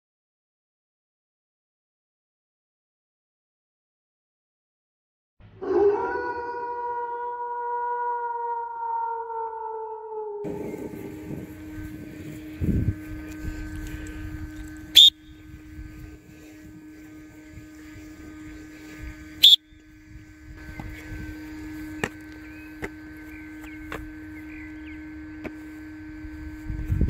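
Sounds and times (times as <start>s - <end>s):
steady outdoor hum: 5.4s - 27.0s
shrill whistle blasts: 14.6s - 15.5s, 19.3s - 19.8s.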